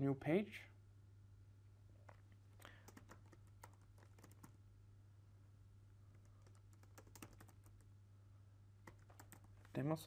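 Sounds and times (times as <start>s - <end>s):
low steady hum: 0.0s - 10.0s
computer keyboard keystrokes: 2.0s - 4.6s, 6.1s - 7.9s, 8.8s - 9.5s.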